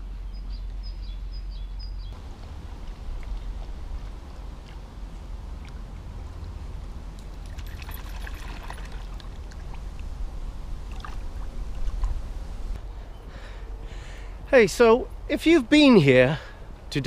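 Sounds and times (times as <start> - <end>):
water sloshing and splashing: 2.4 - 12.4.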